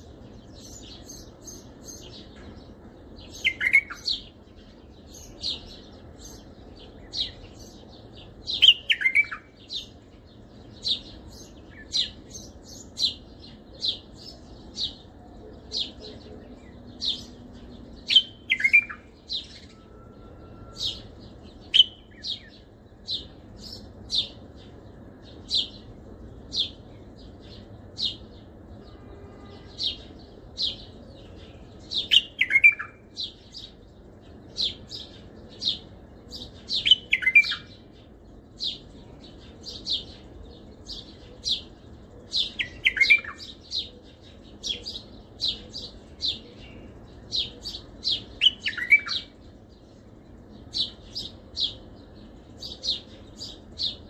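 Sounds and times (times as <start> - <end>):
bird singing chirped notes: 0.0 - 54.0.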